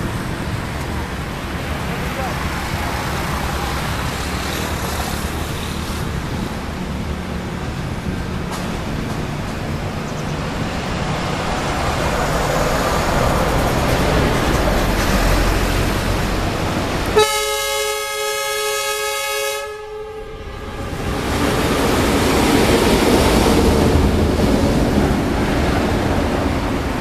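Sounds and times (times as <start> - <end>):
locomotive running noise: 0.0 - 17.8
locomotive horn blast: 17.1 - 21.2.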